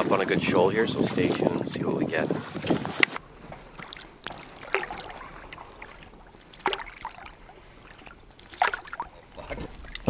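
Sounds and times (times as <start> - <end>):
water lapping against a canoe: 0.0 - 10.0
small splashes: 2.6 - 10.0.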